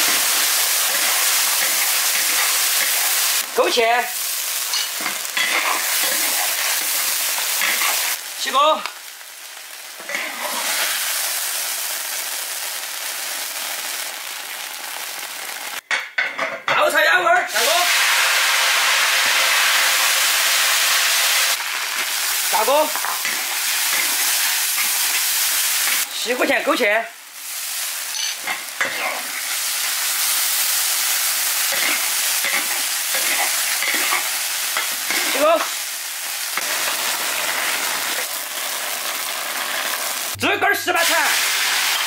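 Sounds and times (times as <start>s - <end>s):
spatula scraping a wok: 0.0s - 3.2s, 4.7s - 8.2s, 10.0s - 11.2s, 31.7s - 35.4s
meat sizzling in hot oil: 0.0s - 15.8s, 17.5s - 40.4s, 41.0s - 42.0s.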